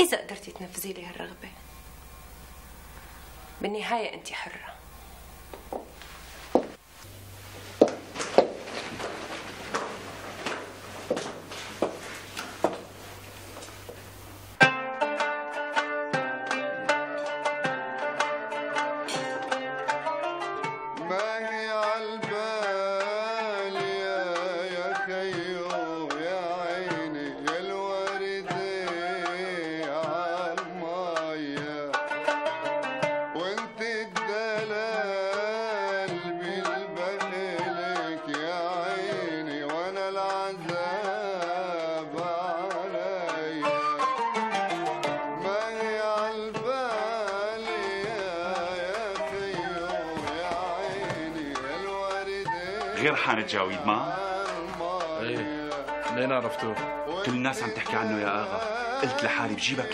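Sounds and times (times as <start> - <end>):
plucked strings: 0.0 - 59.9
hand drum strokes: 0.4 - 3.7, 4.3 - 14.7, 37.0 - 59.4.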